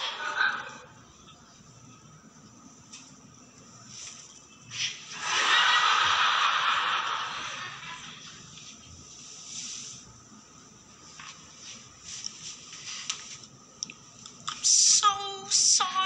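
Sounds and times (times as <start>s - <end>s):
sharp hiss: 9.1s - 10.2s.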